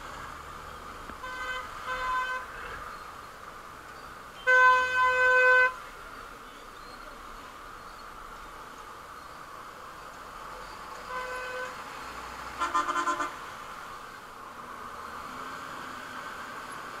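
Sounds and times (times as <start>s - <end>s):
traffic: 0.0s - 17.0s
wind: 0.0s - 17.0s
vehicle horn: 1.2s - 2.8s, 4.4s - 5.8s, 11.1s - 11.8s, 12.6s - 13.4s.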